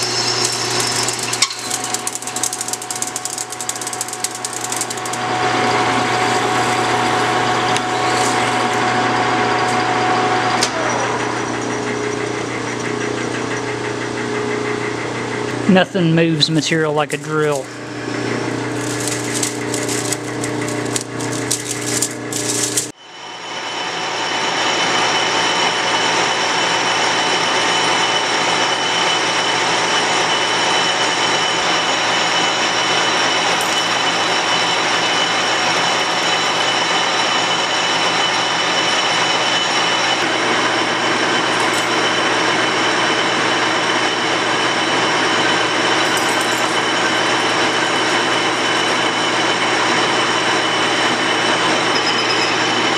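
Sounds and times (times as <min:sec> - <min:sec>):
boring bar cutting hiss: 0:00.0 - 0:08.8
drill scraping rattle of chips: 0:00.0 - 0:09.8, 0:17.4 - 0:23.0, 0:33.4 - 0:52.7
high whine: 0:00.0 - 0:11.6
lathe machine hum: 0:00.0 - 0:15.7, 0:17.5 - 0:52.9.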